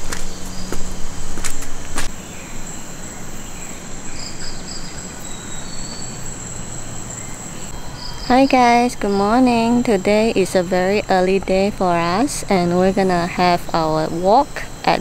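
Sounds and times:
short insect chirps: 0.0s - 10.4s
insects droning: 0.0s - 15.0s.

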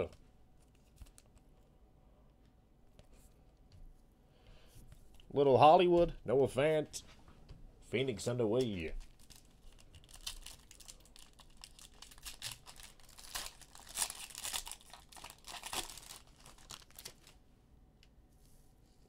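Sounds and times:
foil wrapper crinkling: 8.9s - 17.4s.

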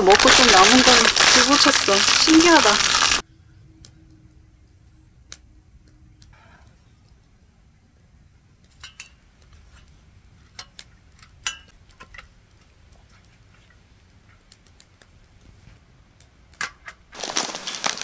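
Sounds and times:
campfire crackling: 0.0s - 3.2s, 8.2s - 18.0s
firewood popping: 0.0s - 3.2s, 16.5s - 18.0s.

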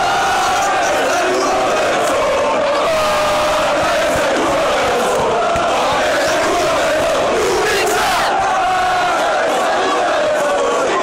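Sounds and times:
crowd chanting: 0.0s - 11.0s.

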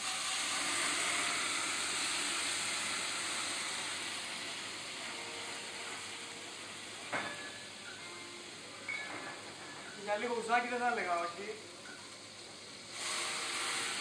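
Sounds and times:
flame hissing and sizzling: 0.0s - 14.0s
sharp metal clank: 7.1s - 7.6s.

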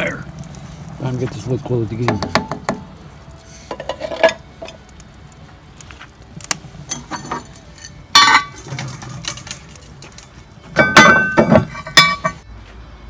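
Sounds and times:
pot and lid clanking: 3.7s - 4.8s, 6.9s - 10.0s, 10.8s - 12.4s.

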